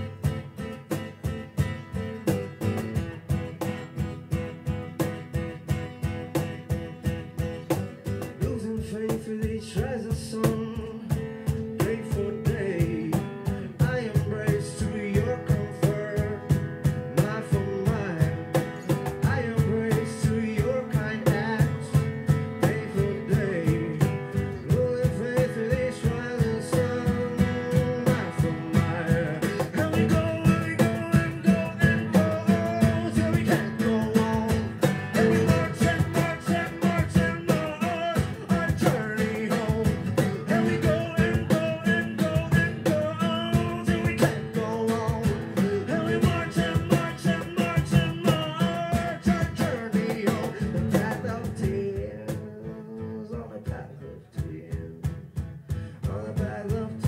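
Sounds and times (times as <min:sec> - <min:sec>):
strummed acoustic guitar: 0:00.0 - 0:57.0
person singing: 0:11.8 - 0:55.1.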